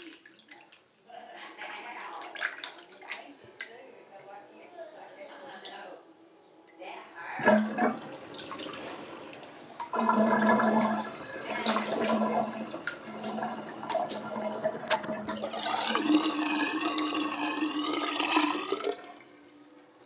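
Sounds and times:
water gurgling down sink drain: 0:07.4 - 0:20.0.

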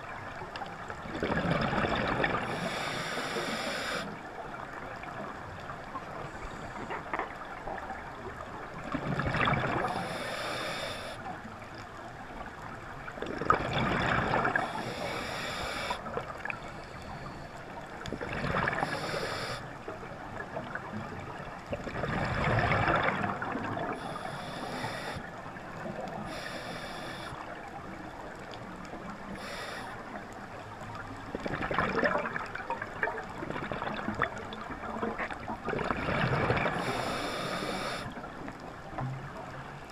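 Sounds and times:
exhaled air bubbling: 0:01.0 - 0:04.1, 0:08.8 - 0:10.3, 0:13.1 - 0:17.3, 0:18.0 - 0:19.6, 0:20.4 - 0:25.2, 0:31.3 - 0:38.3
regulator hissing inhale: 0:02.4 - 0:04.2, 0:09.9 - 0:11.3, 0:14.6 - 0:17.6, 0:18.7 - 0:19.7, 0:23.9 - 0:25.3, 0:26.2 - 0:27.5, 0:29.3 - 0:30.2, 0:36.8 - 0:38.2.

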